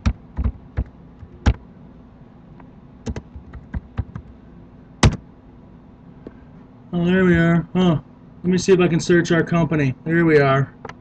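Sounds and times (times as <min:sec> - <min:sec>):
faint low hum: 0:00.0 - 0:11.0
typing on computer keyboard: 0:03.1 - 0:04.3.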